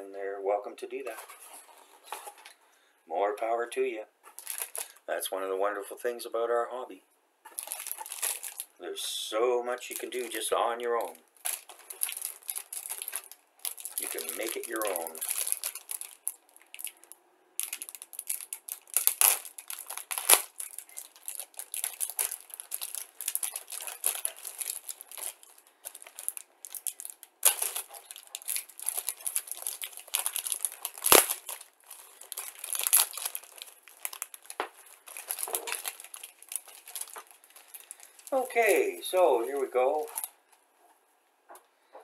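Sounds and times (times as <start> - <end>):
plastic bags crinkling: 4.3 - 5.0, 7.5 - 8.8, 9.7 - 40.4.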